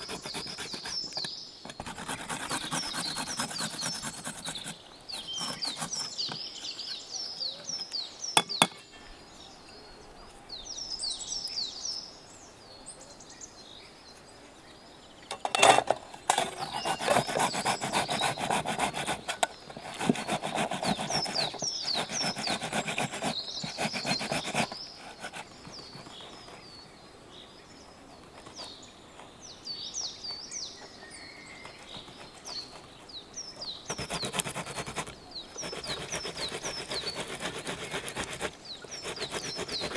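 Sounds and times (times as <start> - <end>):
tomatoes rasping on metal grater: 0.0 - 1.1, 1.7 - 6.8, 16.3 - 25.3, 33.9 - 39.9
garlic being grated: 0.0 - 6.8, 16.3 - 25.3, 33.9 - 39.9
birds chirping: 0.0 - 39.9.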